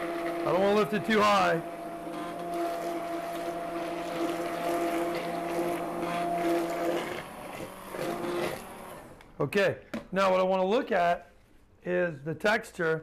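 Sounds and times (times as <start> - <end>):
immersion blender running in soup: 0.0 - 9.2.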